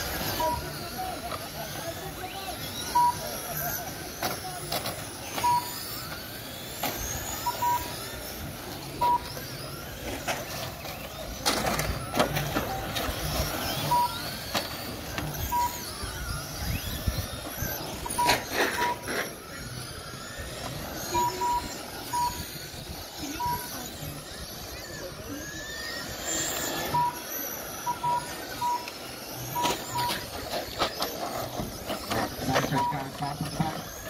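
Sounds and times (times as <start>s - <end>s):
rc car motors whining: 0.0s - 34.0s
rc cars crashing: 0.0s - 34.0s
short electronic beeps: 0.2s - 0.9s, 2.4s - 3.5s, 5.2s - 6.2s, 7.0s - 9.6s, 13.2s - 14.4s, 15.2s - 19.6s, 20.4s - 23.9s, 25.8s - 30.6s, 31.5s - 34.0s.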